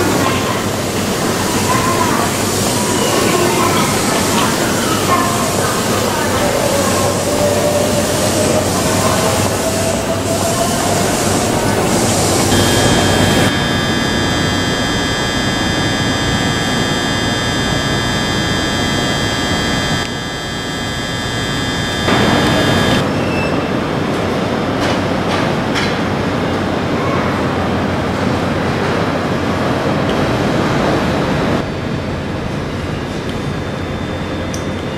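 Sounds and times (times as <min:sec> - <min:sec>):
electric train standing noise: 0:00.0 - 0:26.7
high whining tones: 0:00.1 - 0:23.3.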